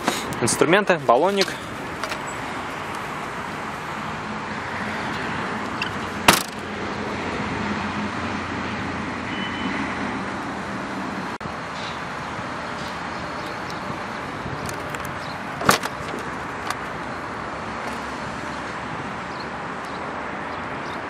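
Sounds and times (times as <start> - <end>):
outdoor background noise: 0.0 - 21.0
car boot lid slamming shut: 6.2 - 6.6, 15.6 - 16.8.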